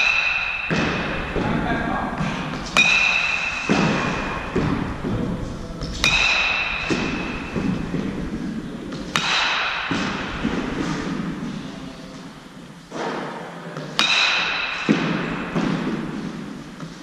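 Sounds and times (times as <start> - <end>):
bat hitting ball ping: 0.0 - 1.4, 2.4 - 4.9, 6.0 - 8.1, 9.0 - 10.6, 14.0 - 16.5
ball thud: 2.2 - 11.6.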